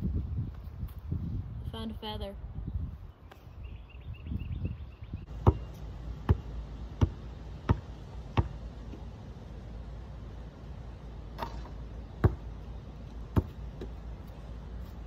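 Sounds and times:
basketball bouncing: 5.3 - 9.1, 11.4 - 12.6, 13.2 - 14.0.

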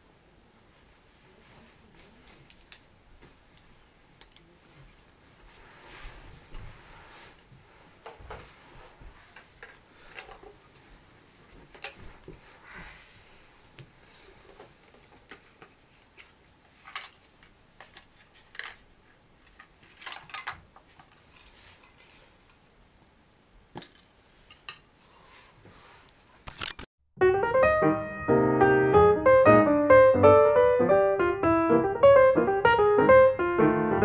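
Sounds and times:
small clicks of objects handled: 2.0 - 2.9, 3.5 - 5.2, 16.8 - 18.8
rustling of packaging: 14.4 - 22.5
piano music: 27.2 - 34.0.

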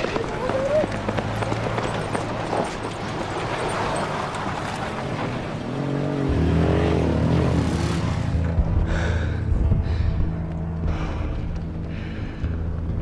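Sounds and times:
clatter over rough ground: 0.0 - 6.1
background music with drone: 0.0 - 13.0
truck engine rumbling: 0.0 - 13.0.

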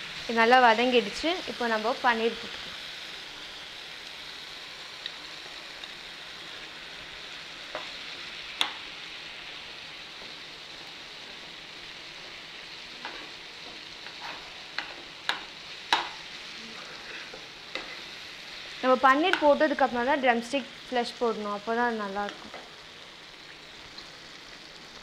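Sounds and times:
masala sizzling in frying pan: 0.0 - 25.0.

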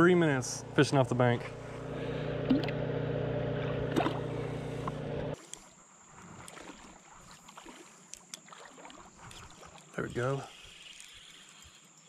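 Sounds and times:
small water splash: 2.4 - 2.8, 3.6 - 4.3, 5.4 - 10.0.

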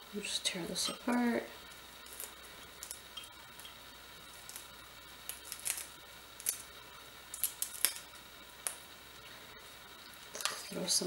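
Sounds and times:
broccoli snapping: 4.5 - 6.7, 7.3 - 8.0.

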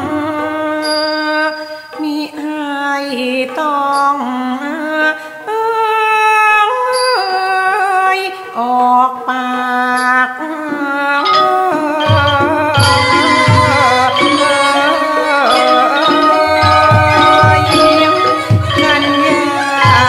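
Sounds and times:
solo voice singing long notes: 10.7 - 20.0.

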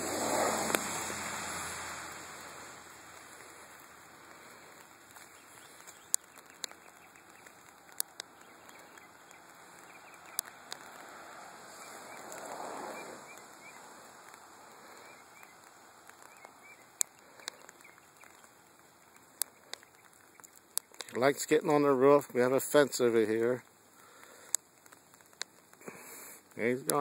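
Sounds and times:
rushing noise: 0.0 - 4.8, 9.7 - 16.4
light rain falling: 0.0 - 27.0.

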